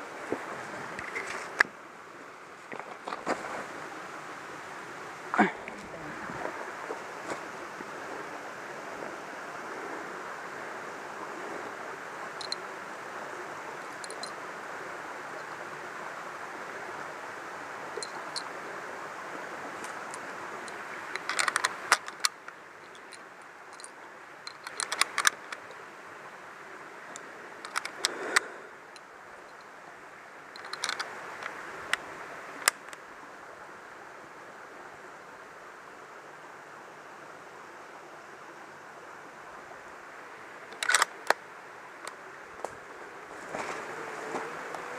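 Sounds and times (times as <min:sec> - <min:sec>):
stream running over rocks: 0:00.0 - 0:44.9
handling clicks and rustles: 0:00.2 - 0:01.8, 0:02.6 - 0:03.7, 0:12.4 - 0:12.6, 0:13.8 - 0:14.4, 0:19.8 - 0:25.9, 0:27.1 - 0:29.7, 0:30.5 - 0:33.0, 0:40.7 - 0:41.4.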